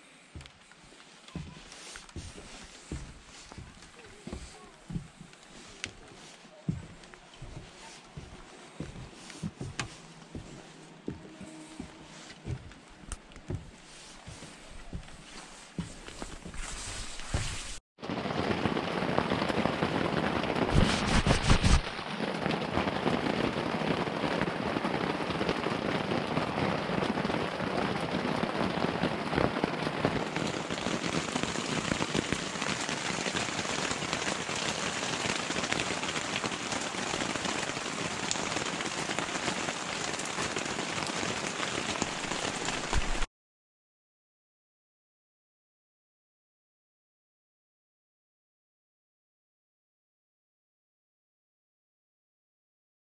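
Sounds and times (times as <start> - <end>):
heavy rain on tent fabric: 0.0 - 43.3.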